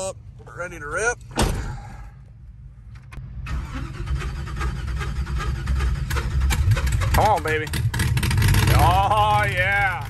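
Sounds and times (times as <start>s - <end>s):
engine running lumpy: 2.9s - 10.0s.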